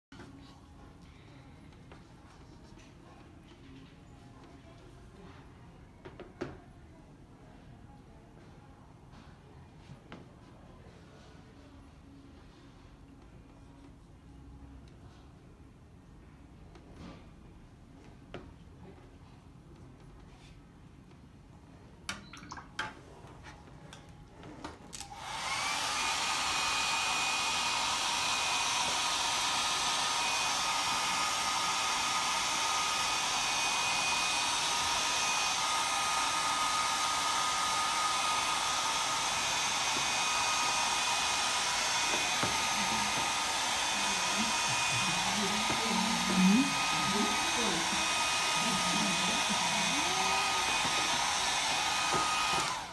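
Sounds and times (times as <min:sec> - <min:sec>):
hair dryer blowing: 0:25.0 - 0:52.9.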